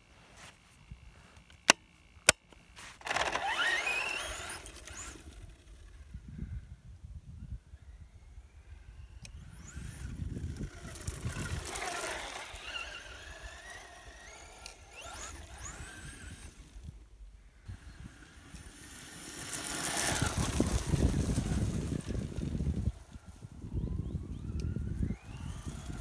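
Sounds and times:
wheels spinning on wet grass: 0:02.8 - 0:06.2, 0:09.3 - 0:17.0, 0:17.6 - 0:23.6, 0:24.3 - 0:26.0
electric motor whining: 0:03.0 - 0:06.2, 0:08.9 - 0:17.0, 0:17.6 - 0:26.0.

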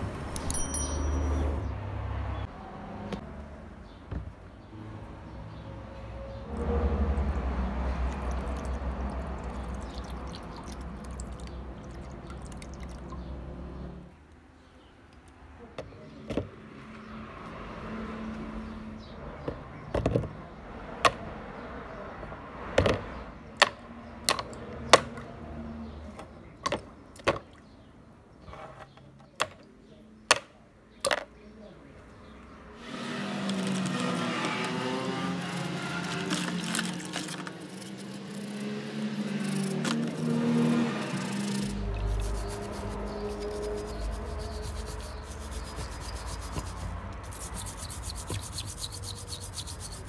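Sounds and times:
metal parts clinking in tub: 0:00.3 - 0:01.4, 0:35.9 - 0:38.0
liquid pouring into plastic tub: 0:06.6 - 0:13.2, 0:35.8 - 0:38.0.

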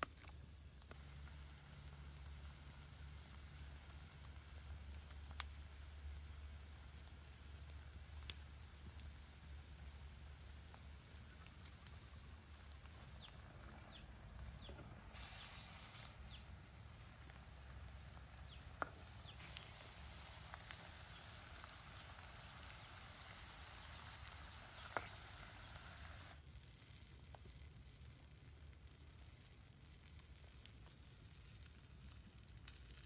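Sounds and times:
wood fire crackling: 0:00.0 - 0:33.0
rush of hiss: 0:15.1 - 0:16.4.

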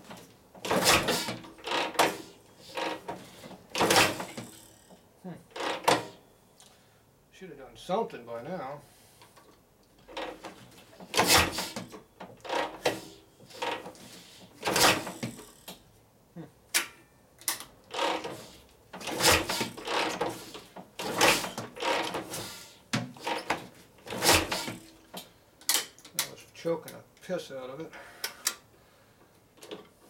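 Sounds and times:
motorcycle kick-starter clattering: 0:10.0 - 0:14.0, 0:16.7 - 0:26.3.

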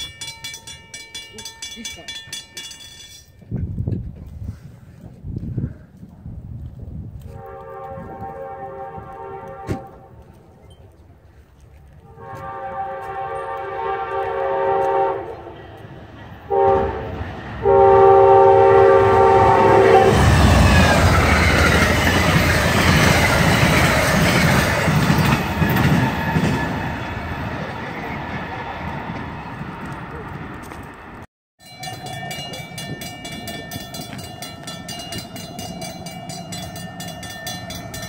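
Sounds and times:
wheels clacking on rails: 0:00.0 - 0:05.2, 0:09.0 - 0:38.0
train rumble: 0:00.0 - 0:38.0
train horn blasts: 0:07.2 - 0:10.2, 0:12.0 - 0:15.8, 0:16.5 - 0:20.8.

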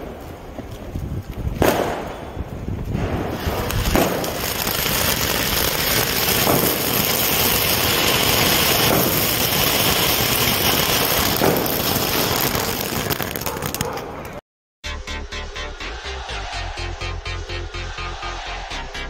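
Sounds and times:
sharp firework cracks: 0:01.6 - 0:14.4
firework fountain hissing and crackling: 0:03.0 - 0:13.8.

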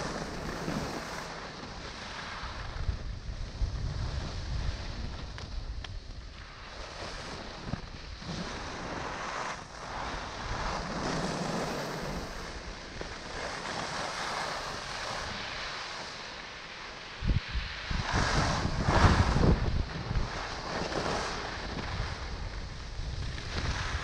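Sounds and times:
skis sliding on snow: 0:00.0 - 0:24.0
wind buffeting microphone: 0:02.4 - 0:15.4, 0:17.2 - 0:24.0.

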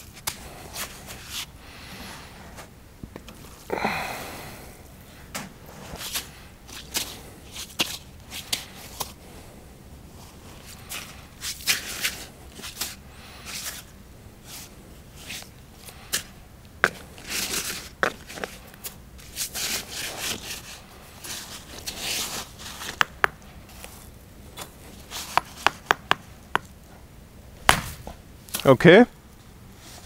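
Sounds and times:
hammer tapping on stone: 0:25.4 - 0:26.7.

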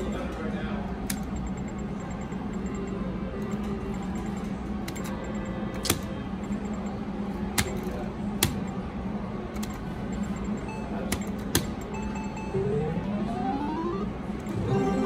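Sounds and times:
low machine hum: 0:00.0 - 0:15.0
faint electronic beeps: 0:10.1 - 0:15.0.

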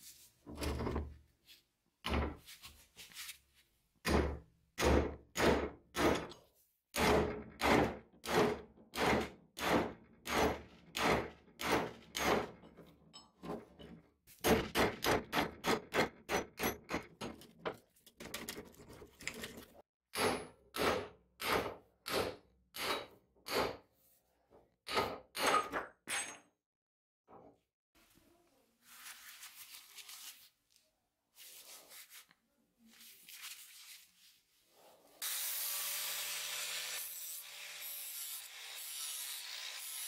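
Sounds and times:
hammer striking a steel chisel: 0:04.0 - 0:06.4, 0:14.4 - 0:17.4, 0:20.1 - 0:23.8, 0:24.9 - 0:26.5.

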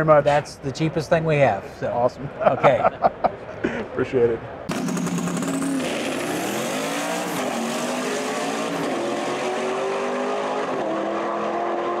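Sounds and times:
engine running at high revs: 0:04.7 - 0:12.0.

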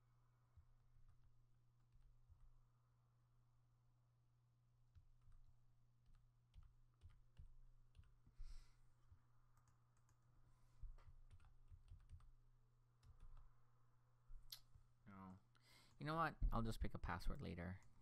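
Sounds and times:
keyboard typing: 0:04.9 - 0:08.3, 0:09.1 - 0:10.2, 0:10.9 - 0:12.4, 0:13.0 - 0:13.5.

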